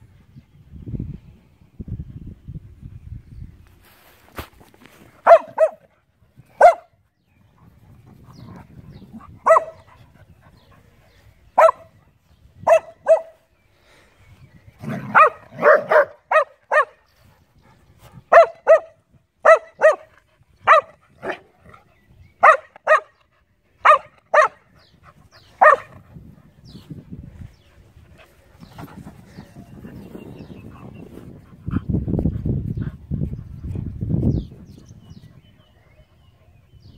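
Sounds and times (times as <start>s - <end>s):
dog barking in play: 5.2s - 5.9s, 6.6s - 6.9s, 9.4s - 9.9s, 11.6s - 11.9s, 12.6s - 13.4s, 14.9s - 17.0s, 18.3s - 21.5s, 23.8s - 24.6s, 25.6s - 26.0s.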